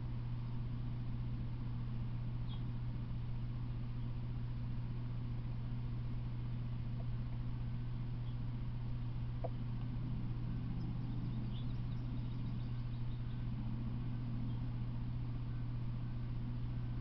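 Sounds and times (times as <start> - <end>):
low hum: 0.0 - 17.0
faint bird chirps: 2.3 - 2.8, 8.2 - 8.6, 9.4 - 17.0.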